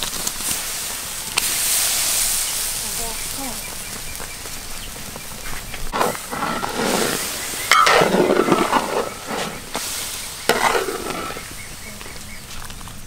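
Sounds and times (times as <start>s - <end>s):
broth simmering in a wok: 0.0s - 13.0s
metal ladle scraping a wok: 5.9s - 11.6s.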